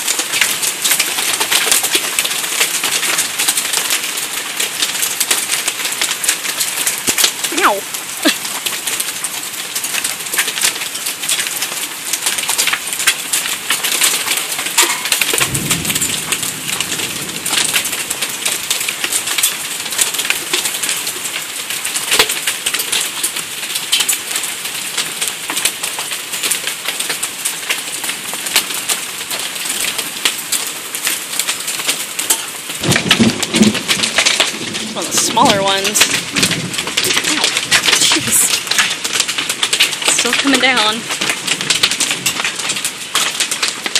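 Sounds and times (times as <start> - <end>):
hail and rain on wooden deck: 0.0 - 43.9.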